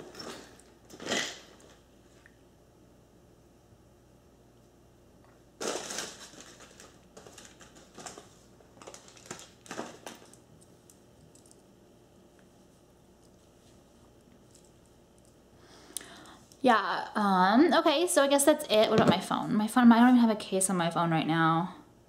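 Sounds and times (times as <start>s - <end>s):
rustling and crinkling: 5.6s - 11.6s, 12.4s - 15.4s.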